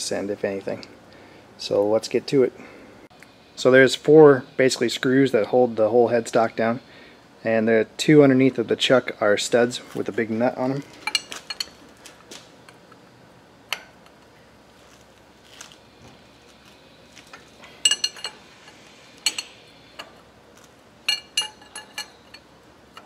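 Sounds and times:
wrench clinking on metal: 17.8s - 18.4s, 19.2s - 20.1s, 21.1s - 22.4s.

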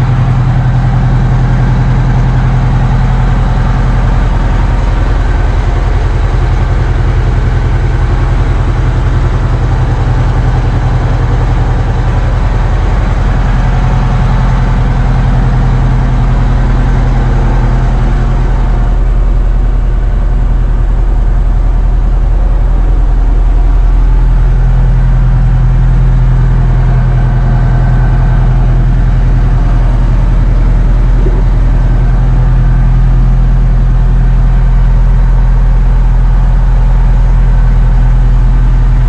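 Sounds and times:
diesel engine idling: 0.0s - 39.0s.

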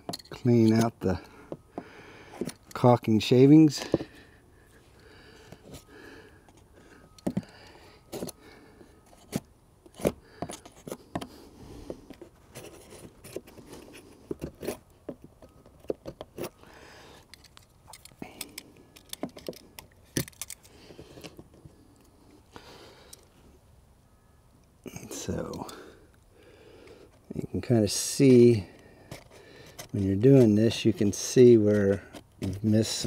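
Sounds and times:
metal tool scraping caulk: 29.1s - 33.0s.

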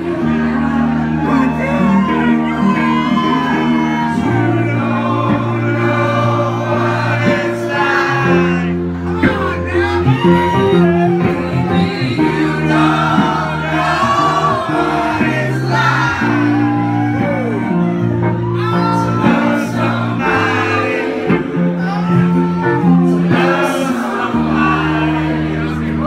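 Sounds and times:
woman and man singing: 0.0s - 17.4s.

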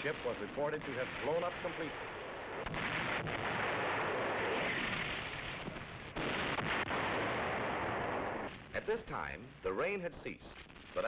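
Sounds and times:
rumbling roar of gunfire: 0.0s - 8.5s
sharp gunshot reports: 0.0s - 8.9s.

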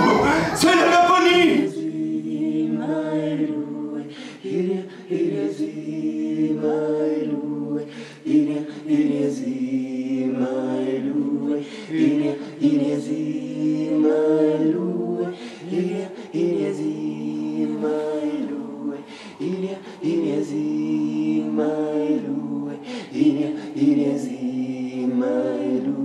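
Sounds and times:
voices chanting: 0.0s - 26.0s
low sustained drone: 14.7s - 25.3s.

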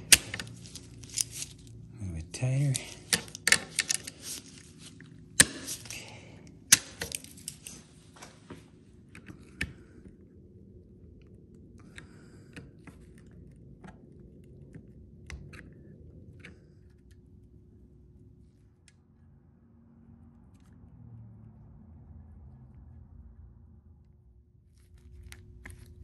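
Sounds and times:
hand tools clinking on metal: 0.0s - 1.7s, 2.3s - 7.8s
sharp metallic snaps: 0.0s - 1.7s, 2.4s - 7.9s.

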